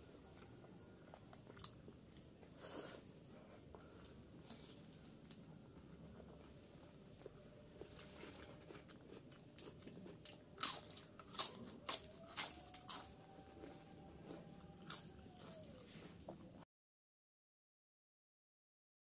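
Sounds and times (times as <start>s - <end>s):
chewing sounds: 0.3s - 2.8s, 7.1s - 16.6s.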